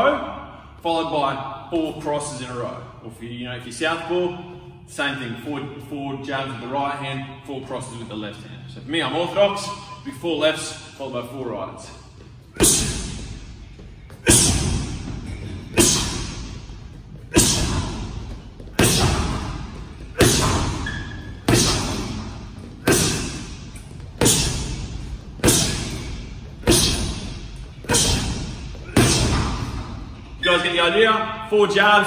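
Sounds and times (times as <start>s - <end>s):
punches thudding on heavy bag: 12.6s - 13.5s, 14.2s - 30.0s.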